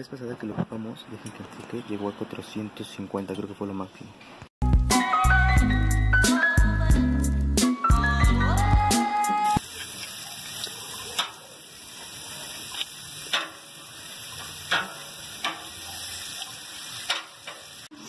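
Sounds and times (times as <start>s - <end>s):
meat sizzling on a grill: 9.6s - 18.0s
metal tongs clicking on grill grate: 10.6s - 11.4s, 12.7s - 13.7s, 14.3s - 15.8s, 16.4s - 17.7s.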